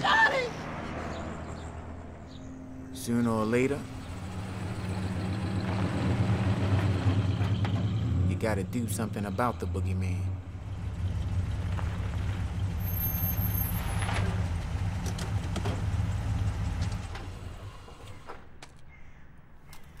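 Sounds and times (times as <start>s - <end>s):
car engine running: 3.1s - 18.1s.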